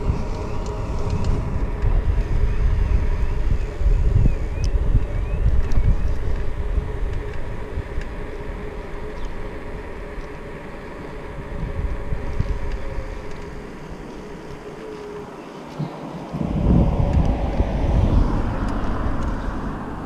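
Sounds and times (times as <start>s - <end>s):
road and tyre rumble: 0.0s - 20.0s
wind buffeting microphone: 0.0s - 20.0s.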